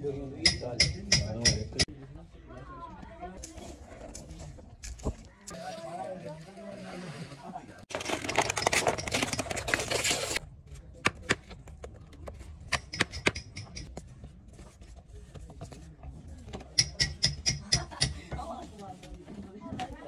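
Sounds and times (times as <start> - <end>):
rustling and crackling: 7.1 - 12.7
sharp clicks and taps: 11.0 - 13.9.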